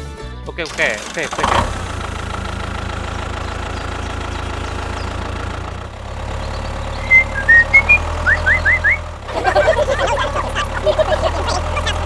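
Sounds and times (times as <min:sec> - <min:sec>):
engine idling: 0:00.6 - 0:12.0
short loud rising chirps: 0:06.4 - 0:09.1.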